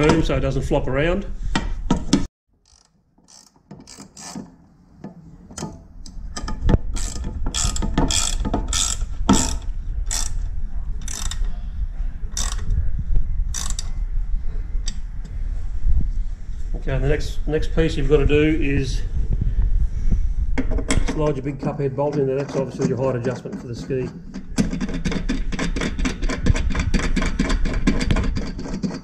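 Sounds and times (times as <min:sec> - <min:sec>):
ratchet spanner clicking: 0:02.6 - 0:04.4, 0:06.4 - 0:10.4, 0:11.0 - 0:11.5, 0:12.4 - 0:12.7, 0:13.5 - 0:13.9.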